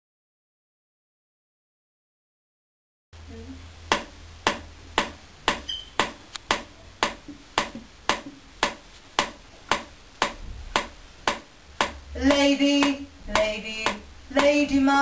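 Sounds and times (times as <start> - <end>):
steady ticking clicks: 3.9 - 14.8.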